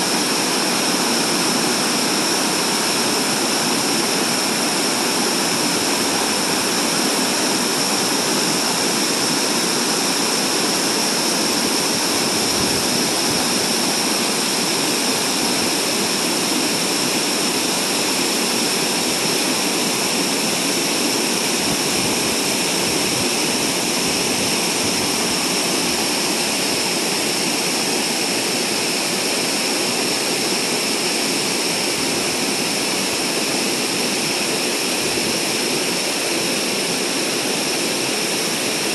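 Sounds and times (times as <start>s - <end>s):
waterfall and creek rushing: 0.0s - 38.9s.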